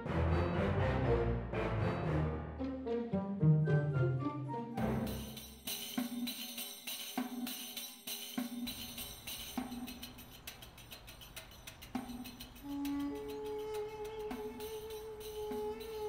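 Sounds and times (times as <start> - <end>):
orchestral film score: 0.0 - 6.2
percussion with steady beat: 4.8 - 16.0.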